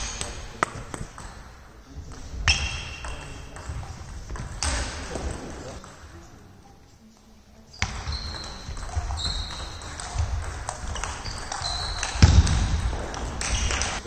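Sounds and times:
shoes squeaking on floor: 7.2 - 14.0
footwork thumps: 7.8 - 14.0.

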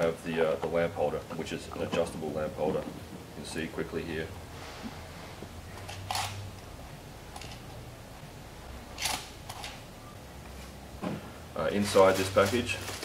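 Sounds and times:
low steady hum: 0.0 - 13.0.

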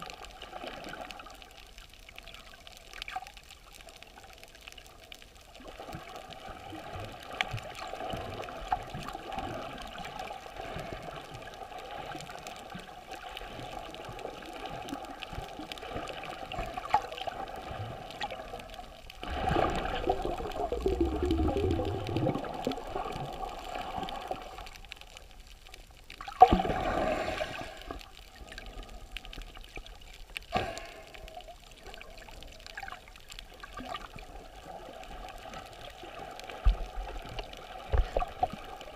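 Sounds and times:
water sloshing and bubbling underwater: 0.0 - 38.9.

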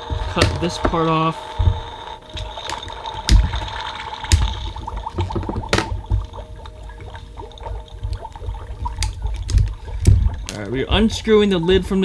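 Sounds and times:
steady electronic tones: 0.0 - 5.1.

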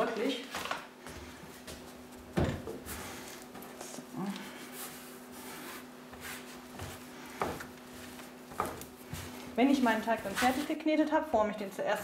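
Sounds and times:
hands kneading dough: 2.8 - 11.4.

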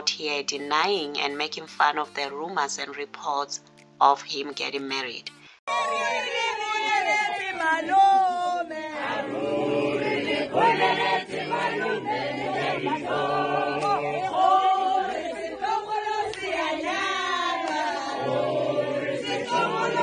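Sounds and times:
group singing unaccompanied: 5.7 - 20.0.

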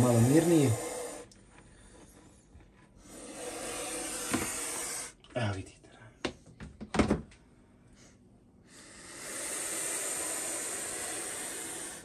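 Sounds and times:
snake hissing: 0.0 - 1.3, 3.0 - 5.2, 8.7 - 12.0.

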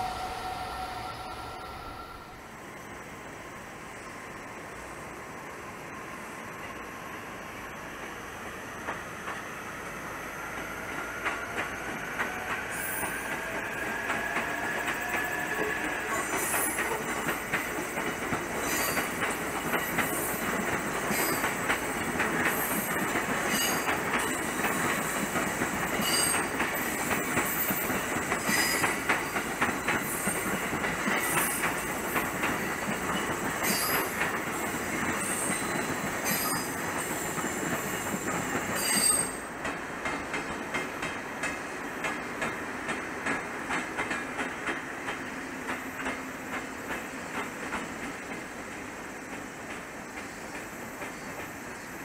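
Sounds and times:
electric train rumbling past: 0.0 - 52.0
wheels clicking over rail joints: 10.9 - 51.7.

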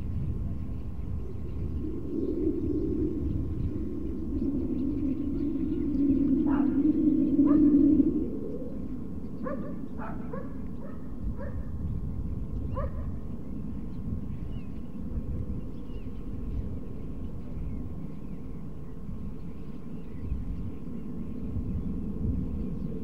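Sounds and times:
distant jet engine rumble: 0.0 - 23.0
dog barking: 9.4 - 11.6, 12.8 - 13.2.

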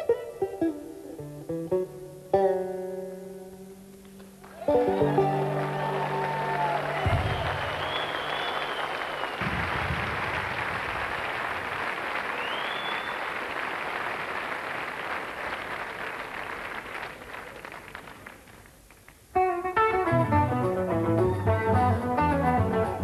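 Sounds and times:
guitar plucked notes: 0.0 - 7.2, 19.4 - 23.0
audience applauding: 4.4 - 19.2
whistle: 6.8 - 9.4, 12.4 - 13.3.

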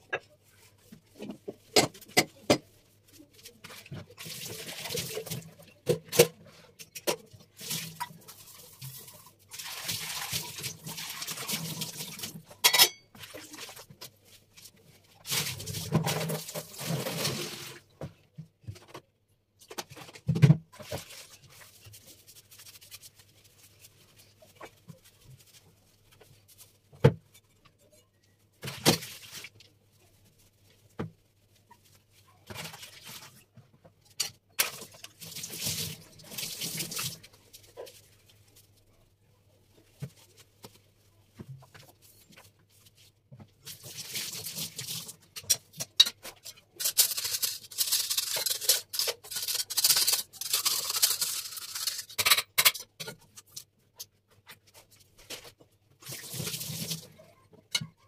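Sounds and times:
kitchenware clattering: 12.6 - 13.2, 45.4 - 53.2.

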